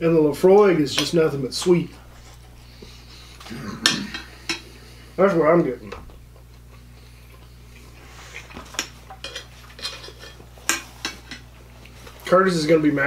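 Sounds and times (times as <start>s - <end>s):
cutlery clinking on plates: 8.7s - 11.4s.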